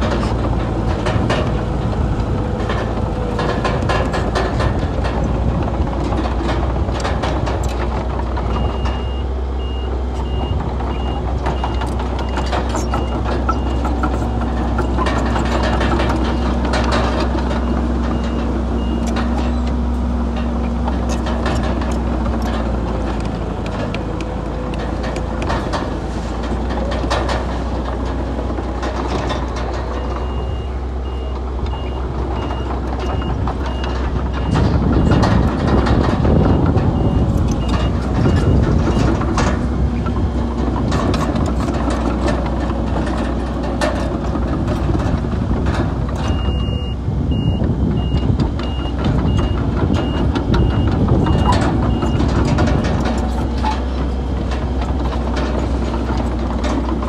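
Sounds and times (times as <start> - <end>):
heavy diesel engines humming: 0.0 - 57.0
reversing alarm beeping: 8.6 - 15.3, 36.4 - 39.1, 46.3 - 52.4.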